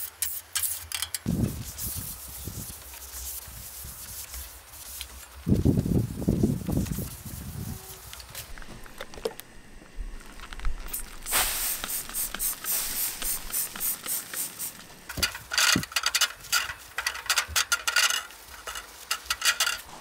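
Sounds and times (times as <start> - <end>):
spray bottle squirting: 10.9 - 14.9.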